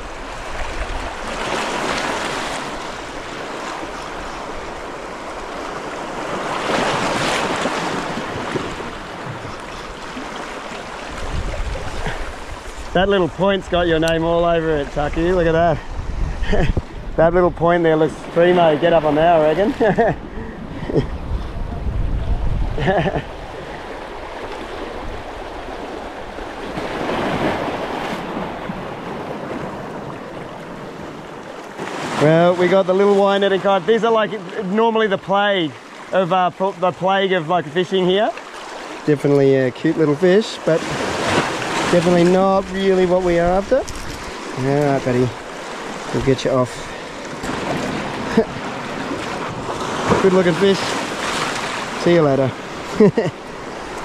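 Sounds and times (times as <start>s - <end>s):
sea waves washing against rocks: 0.0s - 20.3s, 21.2s - 54.0s
wind on microphone: 10.9s - 18.4s, 19.0s - 31.9s, 40.8s - 52.0s.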